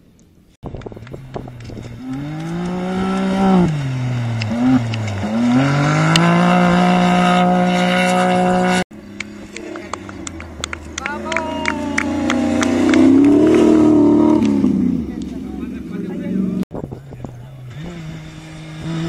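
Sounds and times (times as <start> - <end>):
quieter engine: 0.0 - 19.0
buggy engine revving hard: 1.1 - 19.0.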